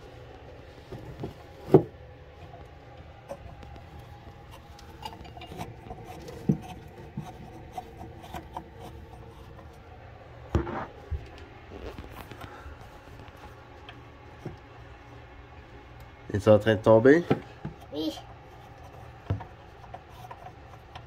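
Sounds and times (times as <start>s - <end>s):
plastic nut scraping on threads: 3.3s - 9.8s.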